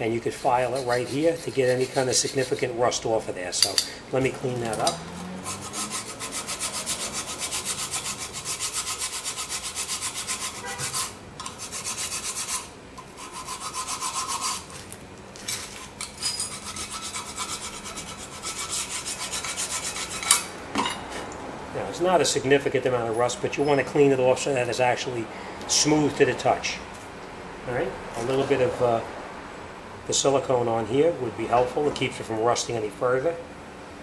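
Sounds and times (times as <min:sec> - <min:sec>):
file rasping on metal: 0:00.2 - 0:02.8, 0:04.8 - 0:14.8, 0:15.6 - 0:20.5.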